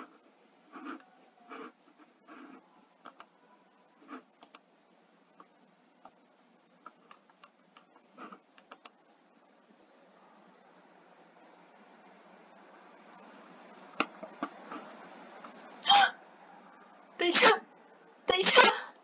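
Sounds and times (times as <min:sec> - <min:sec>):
computer mouse clicks: 0:02.4 - 0:03.3, 0:04.1 - 0:04.7, 0:06.8 - 0:09.0.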